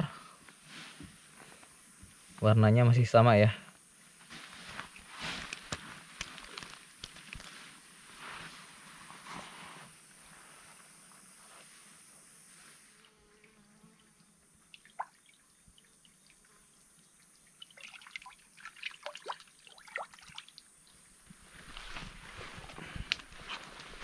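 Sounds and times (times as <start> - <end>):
water dripping: 14.6 - 21.0.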